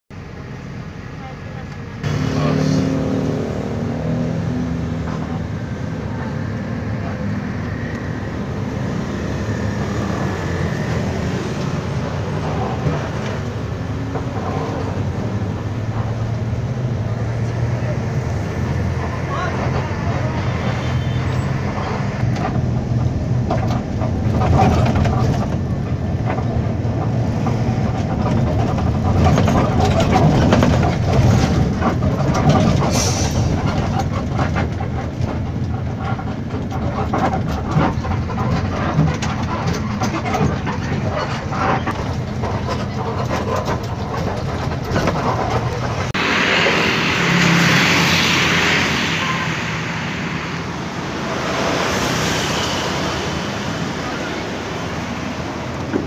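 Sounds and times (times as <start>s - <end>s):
bus engine drone: 0.1s - 56.0s
road noise: 0.1s - 56.0s
traffic noise: 0.1s - 56.0s
rattles and knocks: 22.2s - 46.2s.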